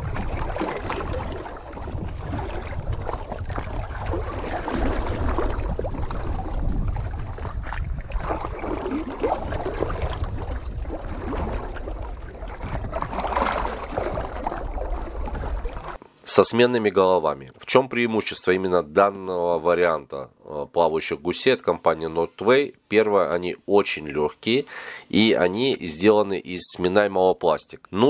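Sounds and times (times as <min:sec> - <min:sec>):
wind buffeting microphone: 0:00.0 - 0:16.0
small waves lapping and splashing: 0:00.0 - 0:16.1.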